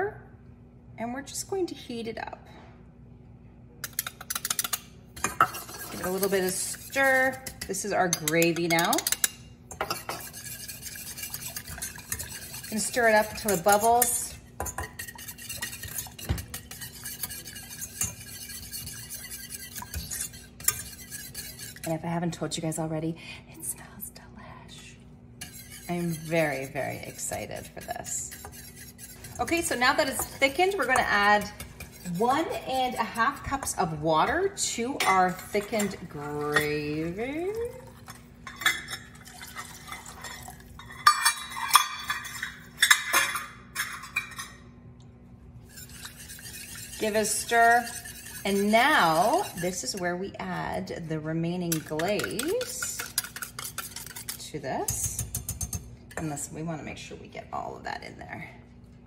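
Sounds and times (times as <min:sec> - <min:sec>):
metal utensils clinking on saucepan: 0:03.8 - 0:22.0, 0:25.4 - 0:44.6, 0:45.7 - 0:56.5
whisk scraping a metal pan: 0:04.0 - 0:22.4, 0:25.4 - 0:44.6, 0:45.6 - 0:56.9.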